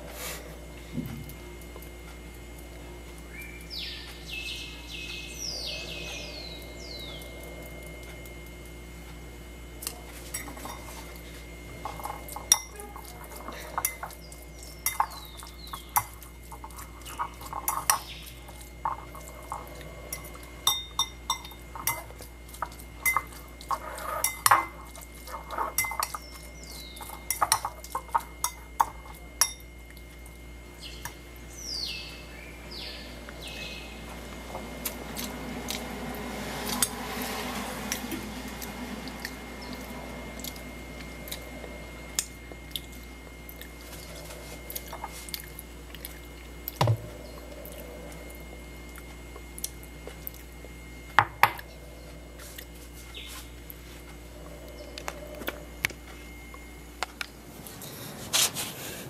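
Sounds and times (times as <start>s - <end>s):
metal fork clinking on ceramic bowl: 11.8s - 18.1s, 18.8s - 29.7s.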